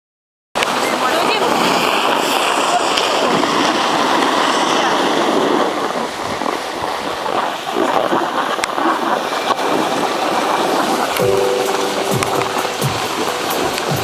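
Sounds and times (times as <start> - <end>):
scraping over packed snow: 0.6 - 11.2
wind buffeting microphone: 0.6 - 14.0.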